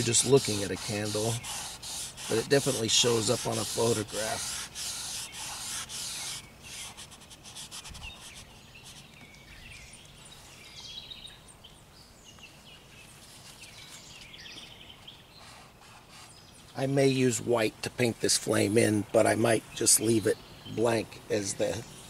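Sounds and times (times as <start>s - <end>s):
brush scrubbing on canvas: 0.0s - 9.1s, 15.4s - 16.4s
small birds chirping: 0.0s - 22.0s.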